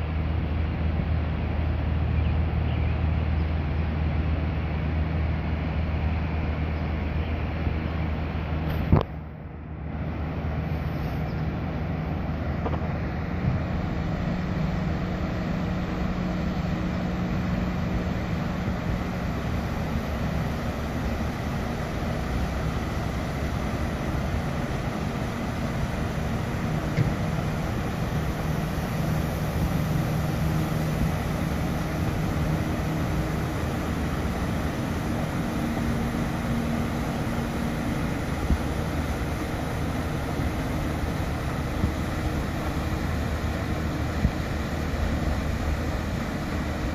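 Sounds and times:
boat engine drone: 0:00.0 - 0:46.9
paddlewheel churning water: 0:00.0 - 0:46.9.

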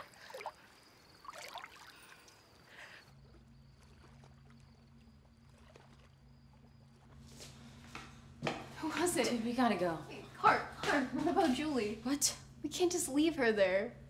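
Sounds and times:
water splashing: 0:00.0 - 0:07.2.

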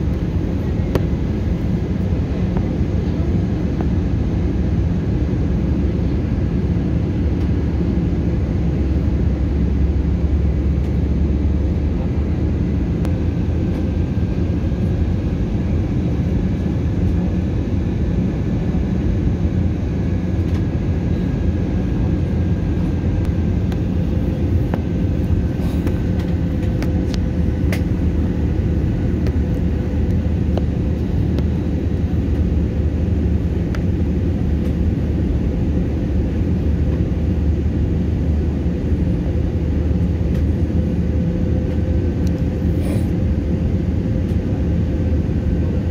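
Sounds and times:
engine and airflow rumble: 0:00.0 - 0:45.9.

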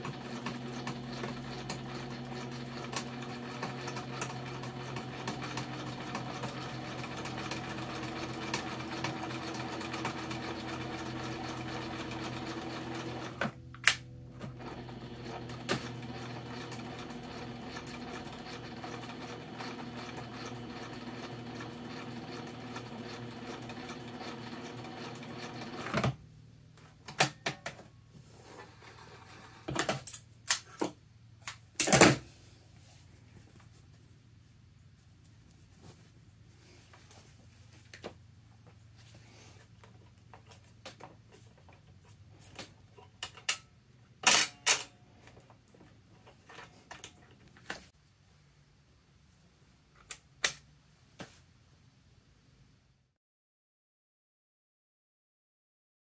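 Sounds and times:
sewing machine clicks: 0:00.0 - 0:26.2
sewing machine stitching: 0:00.0 - 0:26.2.

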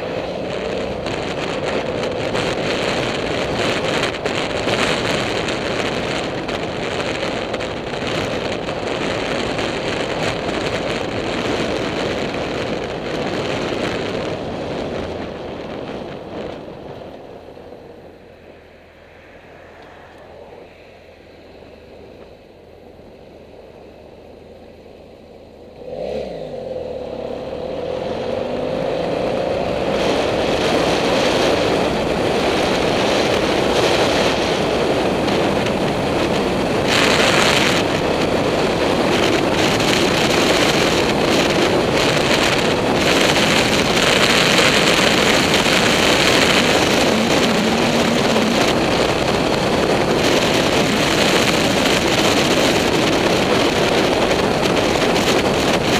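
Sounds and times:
motorcycle engine idling and revving: 0:00.0 - 0:55.9
wind rush on microphone: 0:00.0 - 0:55.9.

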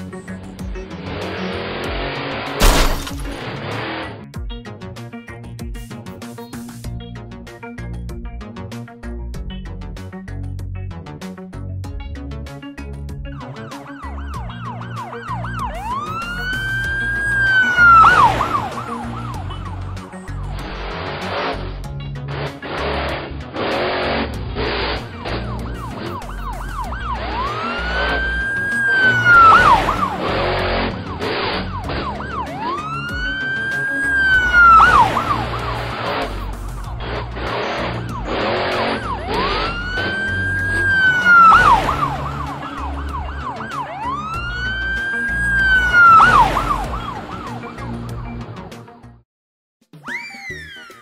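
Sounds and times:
cartoon music with steady beat: 0:04.3 - 0:49.2, 0:49.8 - 0:51.0
siren-like synth glide: 0:13.3 - 0:21.6, 0:22.6 - 0:48.5.

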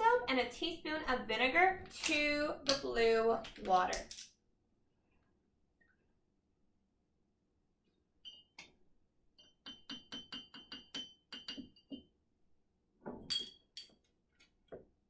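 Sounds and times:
spoon clinking on glass jar: 0:13.2 - 0:14.0.

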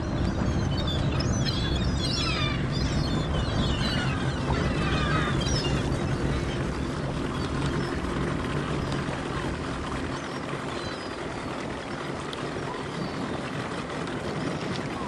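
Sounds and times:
faint seagull calls: 0:00.0 - 0:08.0
boat engine running: 0:00.0 - 0:15.0
rushing water and wind: 0:00.0 - 0:15.0.

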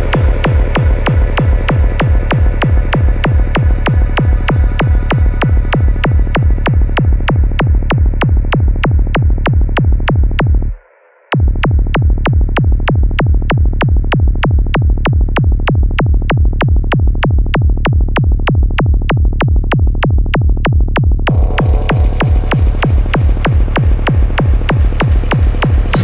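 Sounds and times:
heavy kick drum: 0:00.0 - 0:10.8, 0:11.4 - 0:26.0
muffled synth wash: 0:21.3 - 0:26.0.

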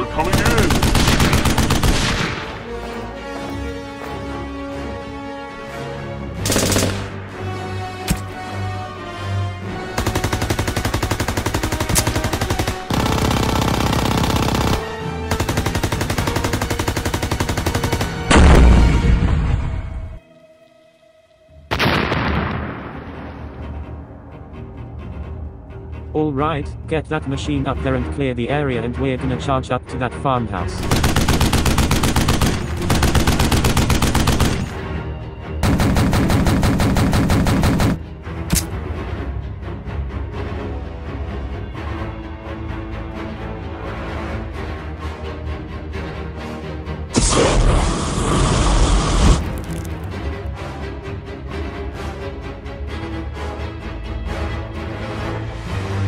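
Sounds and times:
machine-gun fire bursts: 0:00.2 - 0:02.5, 0:06.4 - 0:07.2, 0:10.0 - 0:18.3, 0:30.8 - 0:34.8, 0:35.6 - 0:38.0
loud explosion: 0:21.8 - 0:23.4.

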